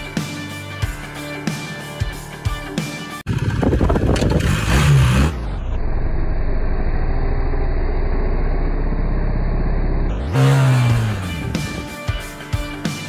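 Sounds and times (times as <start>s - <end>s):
wheel spinning in loose dirt: 3.3s - 8.4s
motorcycle engine revving: 3.3s - 12.2s.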